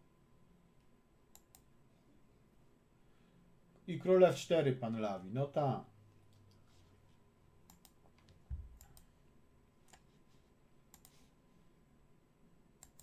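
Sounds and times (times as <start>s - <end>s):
computer clicks: 1.3s - 1.7s, 7.6s - 8.0s, 8.7s - 9.1s, 10.9s - 11.2s, 12.8s - 13.0s.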